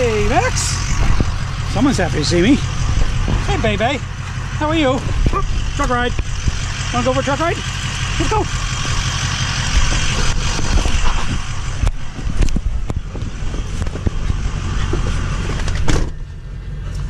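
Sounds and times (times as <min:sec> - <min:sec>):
pickup truck idling: 0:00.0 - 0:17.0
knocks and clunks in cab: 0:02.8 - 0:03.9, 0:09.8 - 0:16.3
car door slamming: 0:14.9 - 0:16.3.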